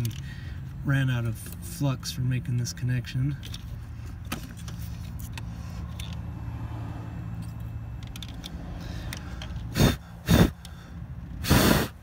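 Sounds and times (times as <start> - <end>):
loud breath: 8.7 - 12.0.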